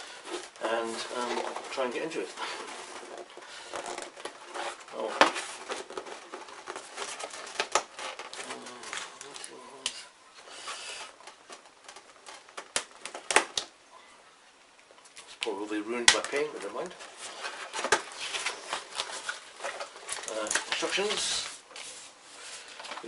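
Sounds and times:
cardboard box rustling: 0.0 - 9.6, 16.2 - 22.1.

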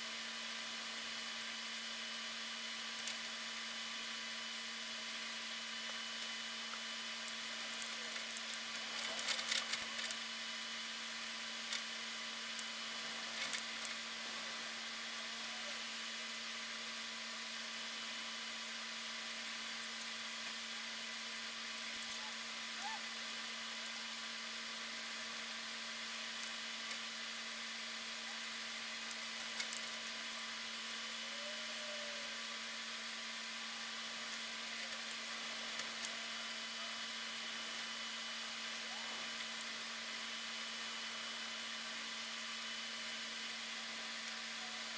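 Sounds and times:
constant low hum: 0.0 - 44.9.

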